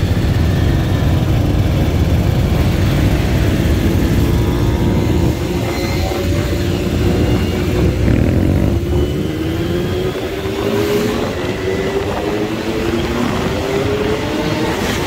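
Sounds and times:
motorcycle engine running: 0:00.0 - 0:15.0
wind rumbling on microphone: 0:00.0 - 0:15.0.

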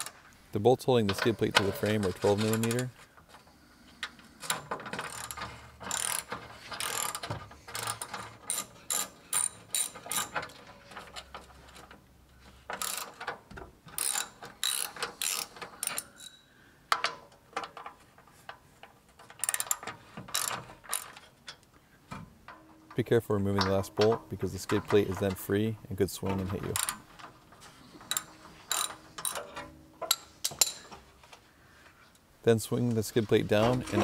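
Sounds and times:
hand ratchet clicking: 0:04.0 - 0:12.0, 0:12.6 - 0:18.0, 0:19.2 - 0:21.6, 0:26.7 - 0:30.9.

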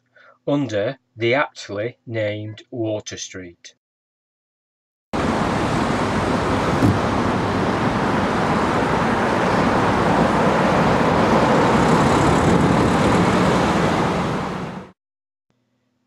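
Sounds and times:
road traffic noise: 0:05.2 - 0:15.0.

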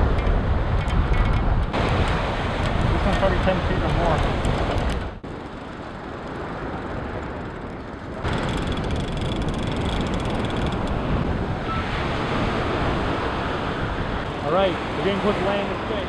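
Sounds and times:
wind on microphone: 0:00.0 - 0:05.7, 0:06.8 - 0:15.1
fishing reel clicking: 0:07.5 - 0:11.0
surf: 0:10.9 - 0:16.0.

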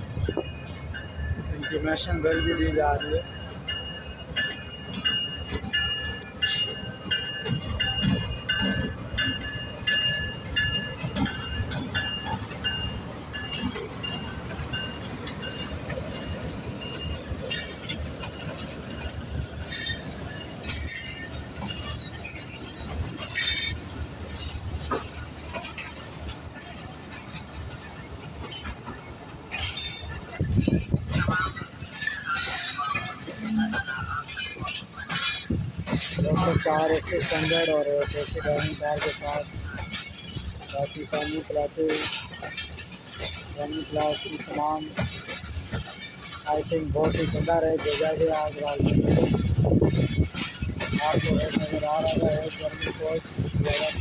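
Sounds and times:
train rumbling into station: 0:00.0 - 0:54.0
ringing station bell: 0:00.1 - 0:26.8
wheels squealing and clanking: 0:00.2 - 0:54.0.

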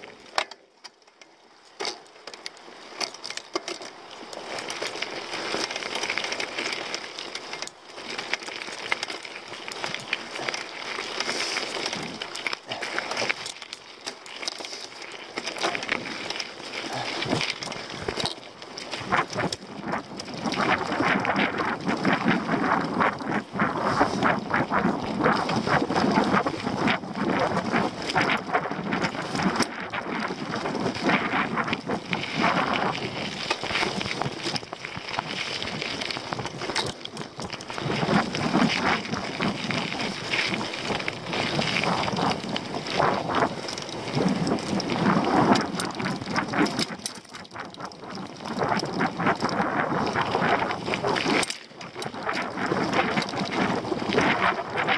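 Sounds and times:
bike clattering over bumps: 0:00.0 - 0:54.9
tyre noise on dirt: 0:01.6 - 0:54.9
wind buffeting microphone: 0:18.9 - 0:54.9.

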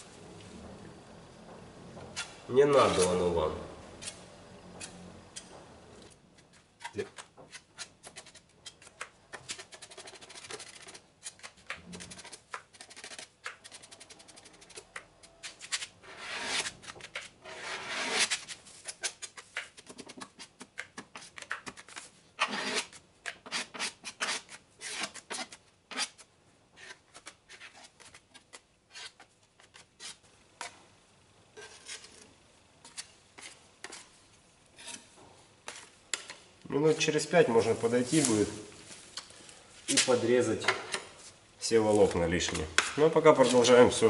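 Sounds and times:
spreader scraping body filler: 0:31.6 - 0:34.1.

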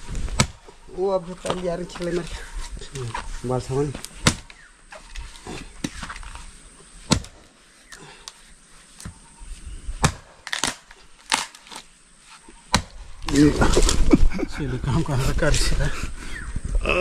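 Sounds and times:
wood being chopped: 0:00.2 - 0:00.7, 0:03.9 - 0:04.7, 0:07.0 - 0:07.5, 0:10.0 - 0:11.8, 0:12.7 - 0:14.0.

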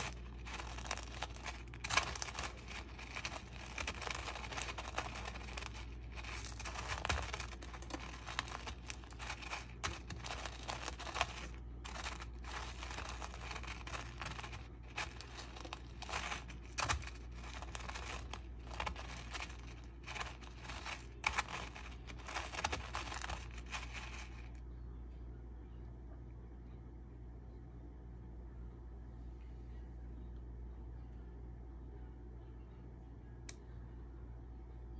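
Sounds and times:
rice cereal crackling: 0:00.0 - 0:24.6.

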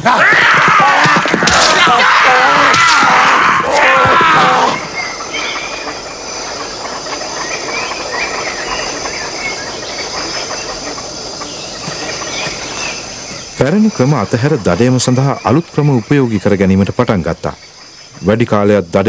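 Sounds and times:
loud cry: 0:00.0 - 0:05.0
high insect drone: 0:00.1 - 0:19.0
even hiss: 0:01.6 - 0:19.0.

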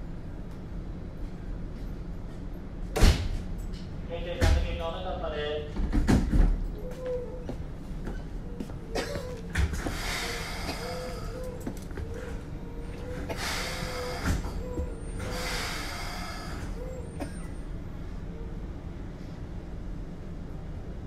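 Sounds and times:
train equipment humming: 0:06.6 - 0:21.0
air brakes hissing: 0:09.7 - 0:11.6, 0:13.1 - 0:17.5.

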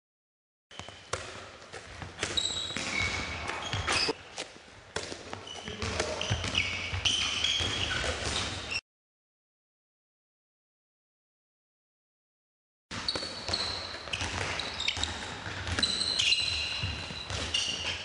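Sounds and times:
ball bouncing and thudding: 0:00.7 - 0:08.6, 0:12.9 - 0:18.0
shoes squeaking on hall floor: 0:00.7 - 0:08.8, 0:13.0 - 0:18.0.

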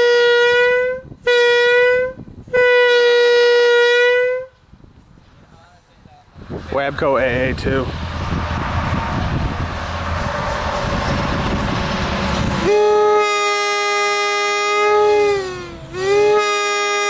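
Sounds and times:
air horn chord: 0:00.0 - 0:04.6, 0:12.6 - 0:17.0.

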